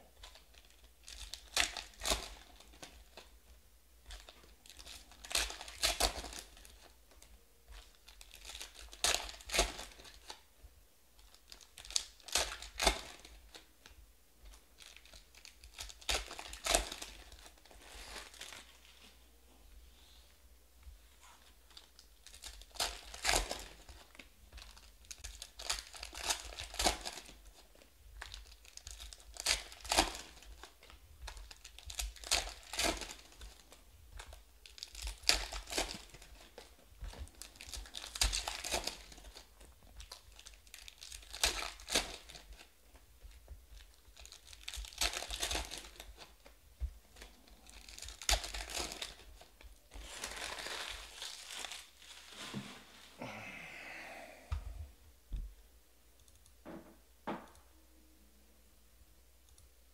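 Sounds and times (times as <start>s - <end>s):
foil crinkling: 0.2s - 3.3s, 4.0s - 10.4s, 11.2s - 19.0s, 21.3s - 53.1s
foil packs being torn open: 7.8s - 10.3s, 21.7s - 27.4s, 28.2s - 30.7s, 31.3s - 36.7s, 37.3s - 42.7s, 43.8s - 46.3s, 47.2s - 52.4s.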